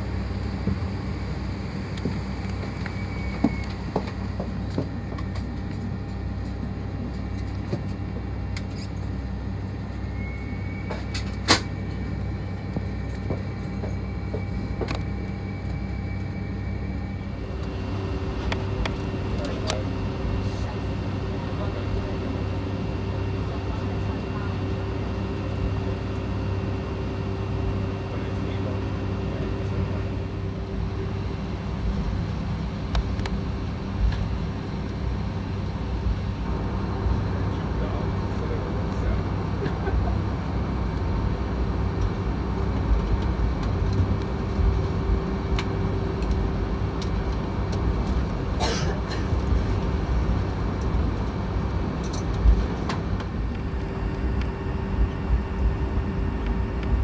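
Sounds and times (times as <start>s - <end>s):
faint high whine: 0.0s - 32.4s, 53.4s - 57.0s
aircraft cabin hum: 0.0s - 57.0s.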